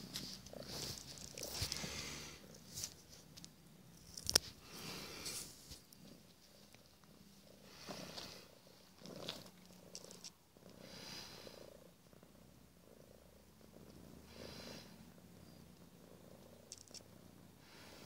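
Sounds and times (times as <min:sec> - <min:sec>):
soft rustles: 0:00.0 - 0:10.4
cat purring: 0:00.0 - 0:18.0.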